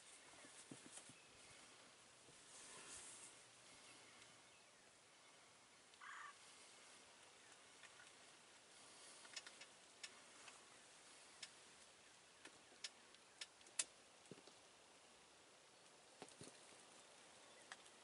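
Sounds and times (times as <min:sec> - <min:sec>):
wild turkey call: 0:06.0 - 0:08.2.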